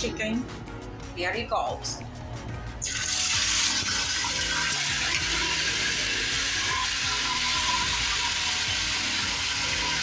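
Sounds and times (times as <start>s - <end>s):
chicken sizzling in hot oil: 2.8s - 10.0s.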